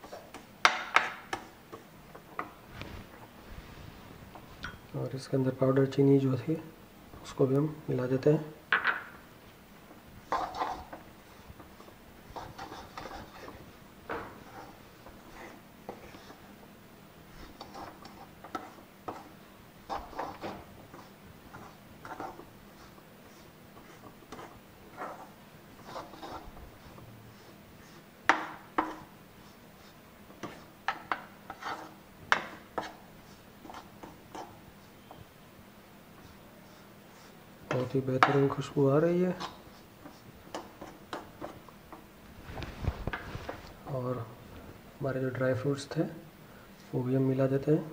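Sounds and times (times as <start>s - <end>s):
spoon scraping dry mix in pan: 0.0s - 3.5s, 10.2s - 35.3s, 36.1s - 43.9s.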